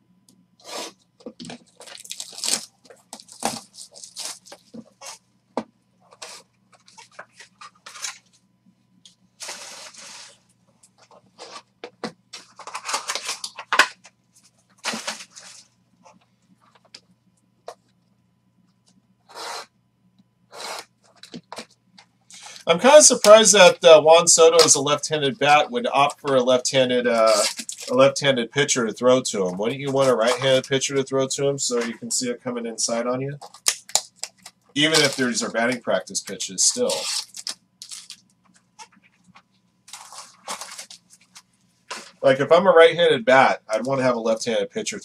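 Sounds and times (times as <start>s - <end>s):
cardboard and wrapping crinkling: 1.4s - 5.2s, 9.4s - 10.4s, 12.4s - 15.7s, 27.2s - 28.0s, 33.4s - 35.8s, 36.6s - 42.3s.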